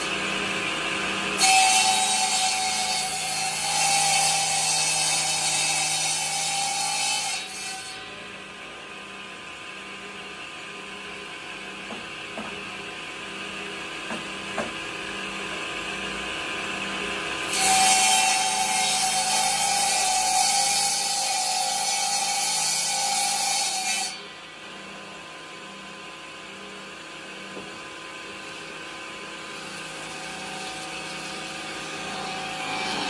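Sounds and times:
table saw ripping wood: 0.0s - 8.0s, 17.4s - 24.2s, 29.4s - 33.0s
table saw running free: 29.5s - 33.0s.

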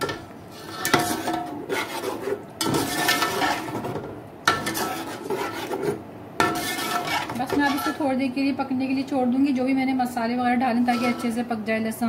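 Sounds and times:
metal spoon scraping metal pot: 0.0s - 8.1s, 10.8s - 11.5s.

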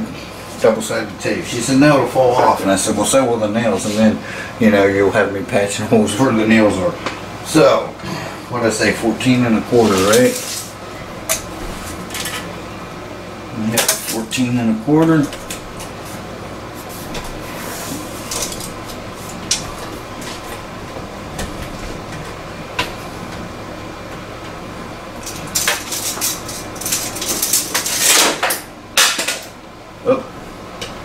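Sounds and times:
tape measure rattling and scraping: 9.7s - 10.8s, 17.8s - 18.8s, 25.2s - 28.6s.

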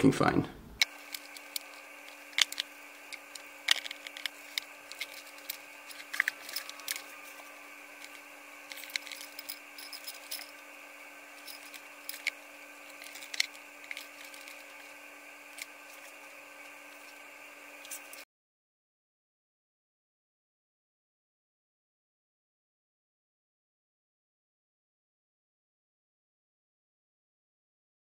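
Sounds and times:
faint steady hum: 0.0s - 18.2s
tools clicking and tapping: 0.8s - 10.6s, 11.4s - 14.8s.

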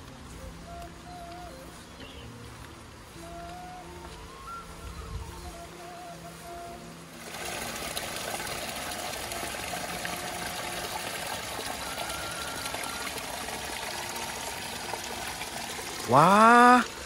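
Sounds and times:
water running and trickling: 5.2s - 17.0s.

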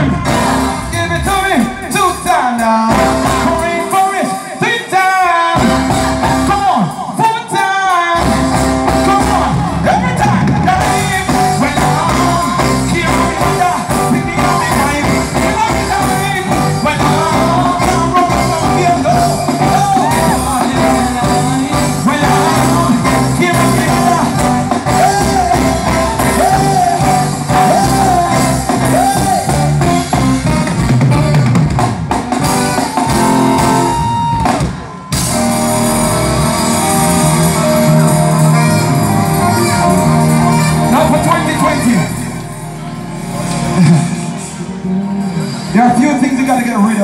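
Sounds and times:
reggae band playing: 0.0s - 47.0s
person singing over pa: 7.0s - 29.8s.

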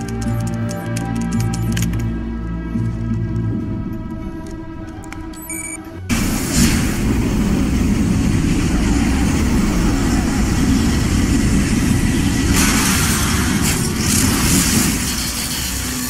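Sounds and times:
fiery rushing roar: 6.1s - 16.0s.

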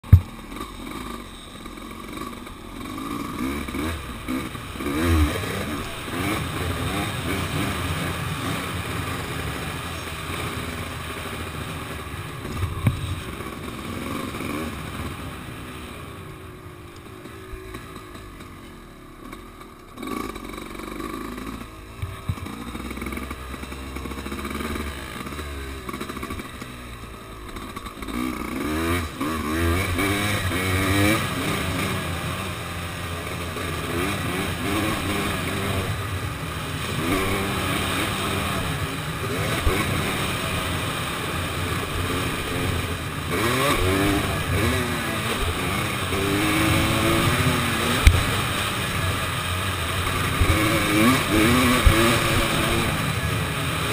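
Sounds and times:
dirt bike engine revving: 0.0s - 53.9s.

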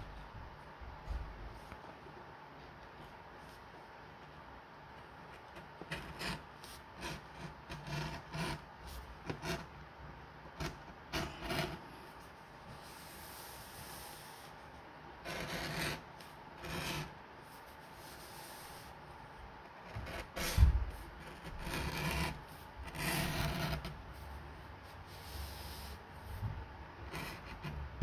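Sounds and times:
tool scraping leather edge: 21.4s - 24.0s.

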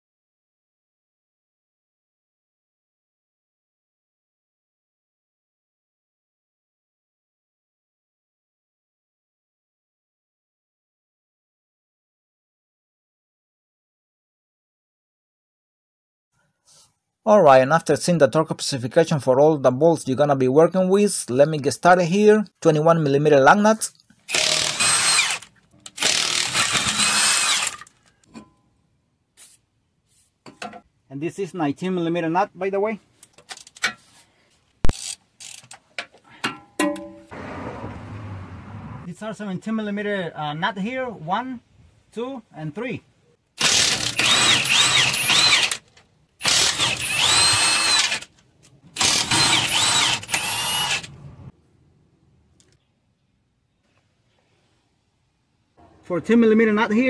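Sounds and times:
impact wrench whining: 24.2s - 28.0s, 34.9s - 35.7s, 43.6s - 48.3s, 48.9s - 51.2s.

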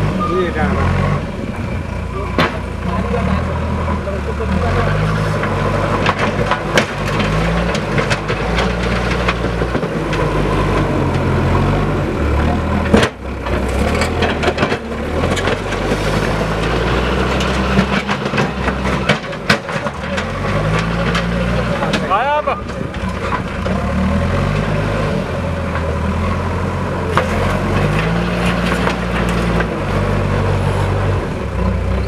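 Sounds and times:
diesel engine running: 0.0s - 32.0s
clicks and knocks: 5.4s - 11.2s.

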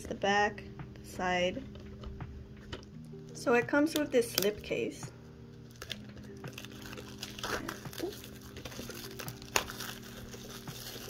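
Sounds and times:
soft background music: 0.0s - 11.0s
plastic wrap crinkling: 5.6s - 11.0s.

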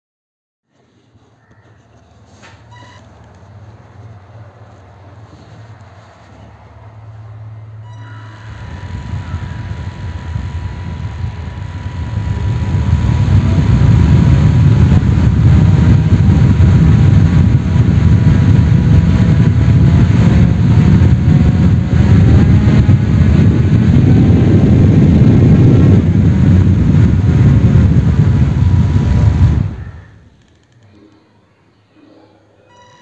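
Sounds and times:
small motor spinning propeller: 8.1s - 30.2s.

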